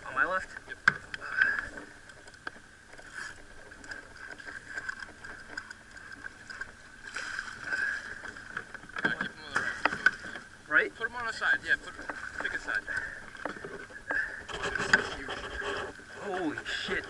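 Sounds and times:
water lapping around a kayak: 0.0 - 17.0
fish splashing: 2.9 - 10.6.

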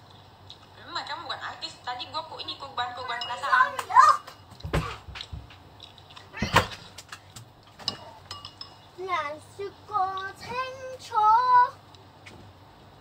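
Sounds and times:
spoon clinking against dish: 3.1 - 3.6, 7.8 - 8.9.

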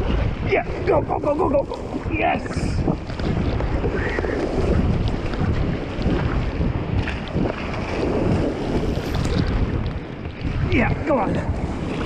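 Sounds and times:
whitewater rushing: 0.0 - 3.2
wind buffeting microphone: 0.0 - 12.0.

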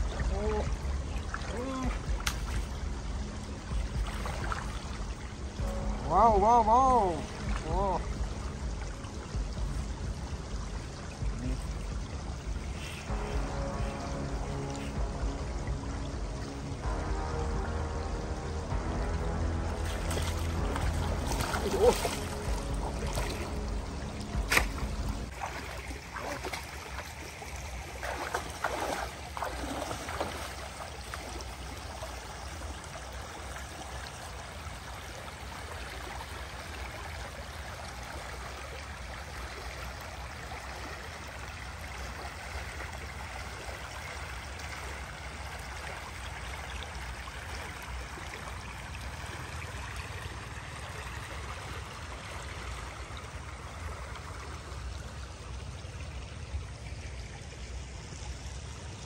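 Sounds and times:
splashing from wading in water: 0.0 - 2.9, 19.8 - 32.2
shallow stream flowing: 0.0 - 59.0.

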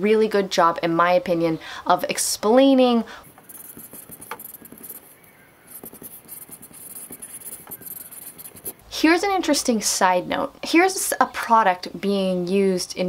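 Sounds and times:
marker squeaking on whiteboard: 3.2 - 8.8.

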